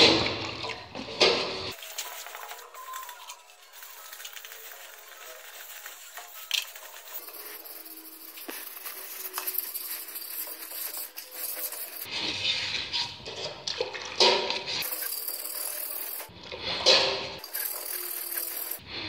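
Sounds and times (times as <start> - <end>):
sandpaper rubbing metal wheel: 1.7 - 12.7, 14.8 - 16.3, 17.4 - 18.8.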